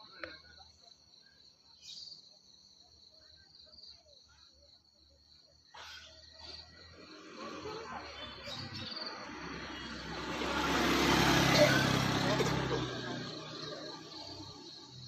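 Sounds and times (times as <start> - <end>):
vehicle noise: 6.2 - 15.0.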